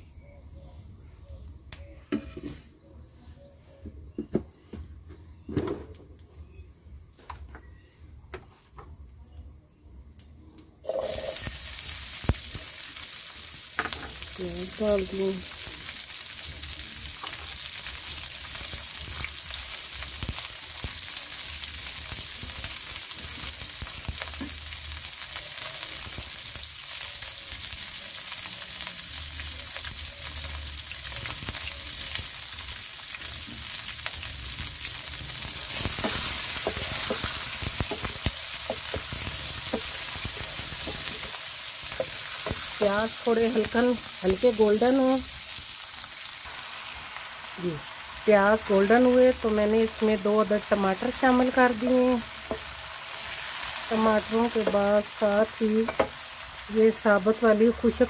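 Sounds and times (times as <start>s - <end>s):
onions sizzling in frying pan: 10.8s - 58.0s
wooden spatula stirring in pan: 35.4s - 43.8s.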